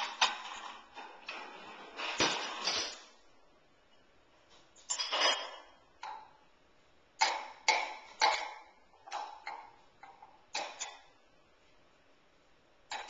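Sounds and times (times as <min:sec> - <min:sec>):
dishes clinking in dishwasher rack: 0:04.9 - 0:05.7.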